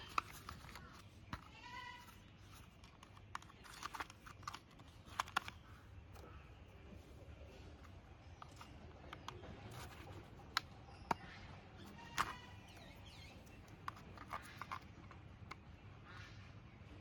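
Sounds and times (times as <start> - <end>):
plastic toy parts clicking: 0.0 - 5.6, 7.8 - 11.2, 11.8 - 15.6.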